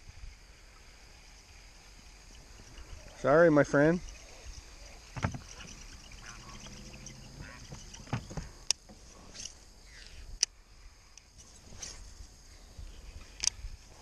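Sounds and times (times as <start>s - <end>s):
soft knocks: 5.2s - 5.5s, 7.7s - 8.5s.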